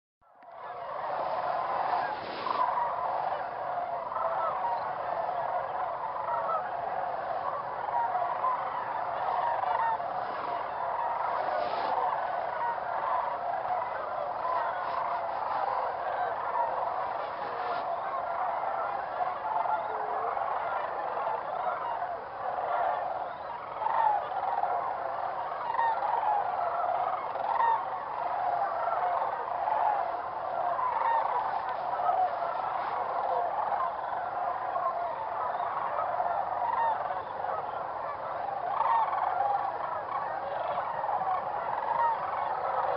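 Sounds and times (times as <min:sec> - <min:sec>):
flock of geese honking: 0:00.4 - 0:42.9.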